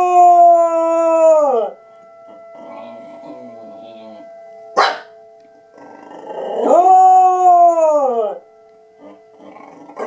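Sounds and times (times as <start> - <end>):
dog howling: 0.0 - 1.8, 5.8 - 8.4, 9.0 - 10.0
steady siren tone: 0.0 - 10.0.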